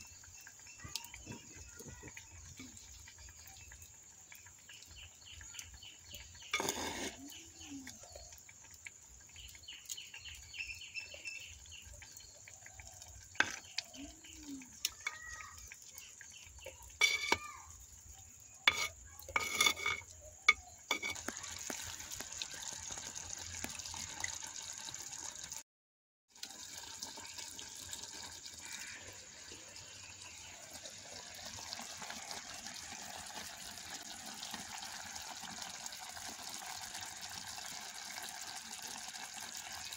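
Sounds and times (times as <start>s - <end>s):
water bubbling in pot: 0.0s - 25.6s, 26.3s - 39.9s
metal spoon scraping clay pot: 6.6s - 7.3s, 16.9s - 17.4s, 18.6s - 21.3s.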